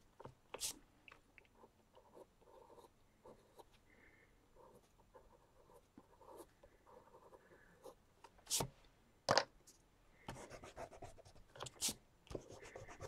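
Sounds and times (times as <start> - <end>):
pencil sketching on paper: 10.3 - 13.0.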